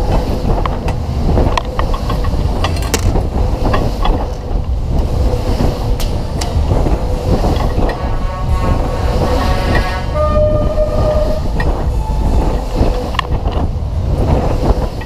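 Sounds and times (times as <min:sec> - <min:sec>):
clicks and knocks from ride car: 0:00.0 - 0:04.7
fairground ride rumbling: 0:00.0 - 0:15.0.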